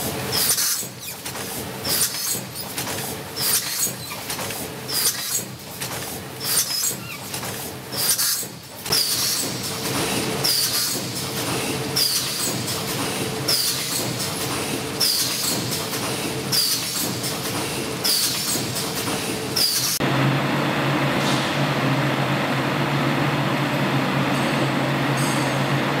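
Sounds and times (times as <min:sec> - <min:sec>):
filling machine hiss and clack: 0:00.0 - 0:20.0
steady machine hum: 0:08.6 - 0:26.0.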